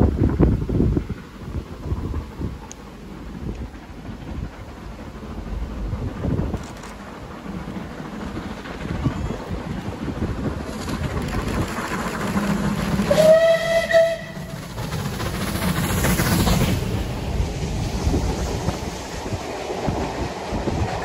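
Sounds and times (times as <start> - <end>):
steam locomotive passing: 0.0 - 21.0
wheels clicking over rail joints: 0.0 - 21.0
steam whistle blast: 13.1 - 14.5.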